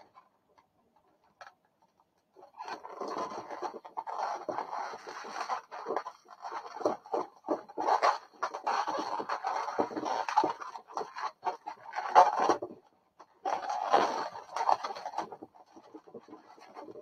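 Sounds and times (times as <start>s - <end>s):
balloons squeaking and rubbing: 2.6s - 12.2s.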